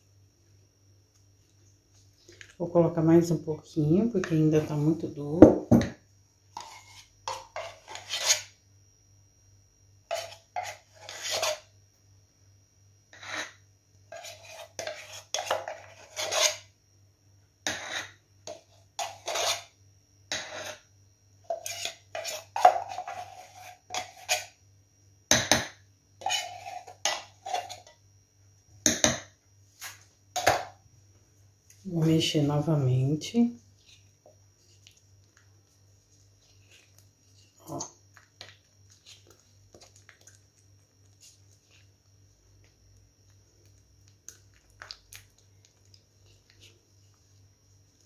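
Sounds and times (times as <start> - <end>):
spoon scraping a bowl: 6.5 - 8.6, 10.1 - 11.7, 13.1 - 16.7, 17.6 - 20.9, 21.5 - 24.6, 26.2 - 28.0, 36.4 - 40.4.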